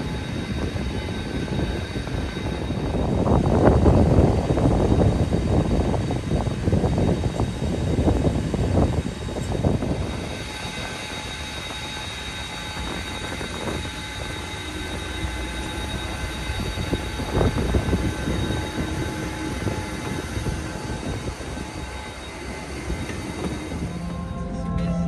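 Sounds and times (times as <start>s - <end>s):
high whine: 0.0s - 25.0s
wind on microphone: 0.0s - 25.0s
low rumble: 12.5s - 25.0s.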